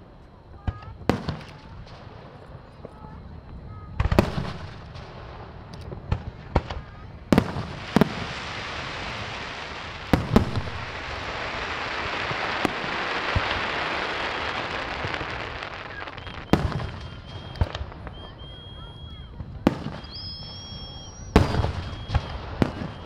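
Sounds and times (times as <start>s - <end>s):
firework bangs: 0.6s - 3.1s, 3.8s - 23.0s
firework crackling hiss: 3.9s - 23.0s.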